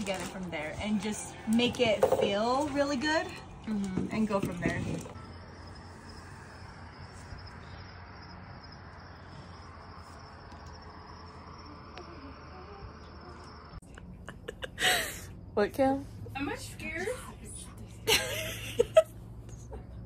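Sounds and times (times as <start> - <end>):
crickets chirping: 4.1 - 17.0.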